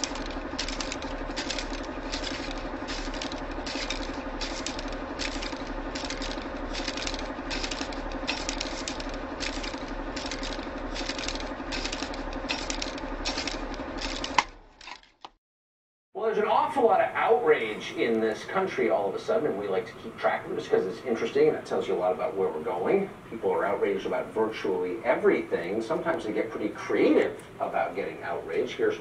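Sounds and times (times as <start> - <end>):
typewriter keys clacking: 0.0 - 15.1
constant low hum: 0.0 - 15.3, 16.2 - 29.0.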